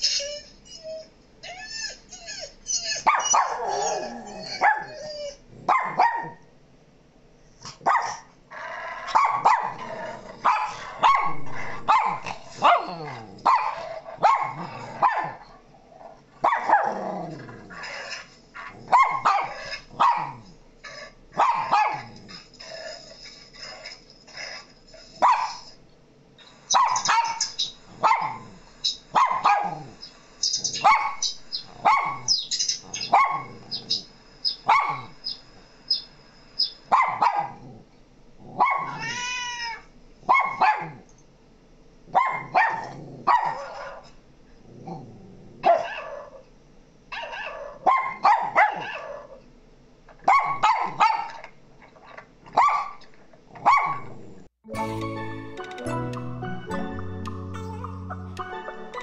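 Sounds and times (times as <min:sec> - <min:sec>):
dog barking and howling: 0:00.0 - 0:06.4, 0:09.1 - 0:15.5, 0:16.4 - 0:17.0, 0:17.8 - 0:22.1, 0:26.7 - 0:28.5, 0:29.1 - 0:35.3, 0:36.9 - 0:37.6, 0:38.6 - 0:39.2, 0:40.3 - 0:41.0, 0:42.1 - 0:44.0, 0:45.6 - 0:46.4, 0:47.1 - 0:49.4.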